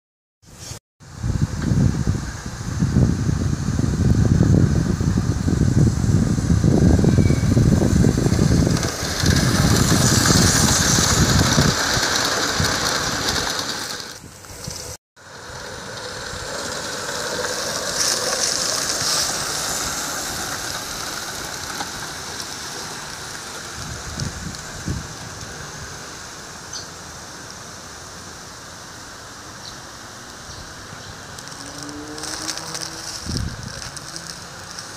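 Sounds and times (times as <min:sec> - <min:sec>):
steam locomotive hissing: 0:00.5 - 0:34.9
wind rumbling on microphone: 0:01.0 - 0:26.4, 0:30.5 - 0:34.9.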